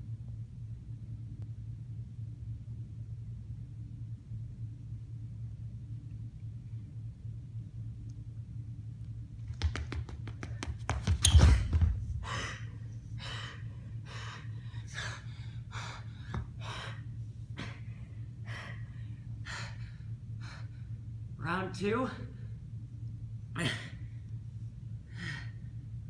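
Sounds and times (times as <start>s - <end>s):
low steady hum: 0.0s - 26.0s
person breathing hard: 12.1s - 21.0s, 25.0s - 25.8s.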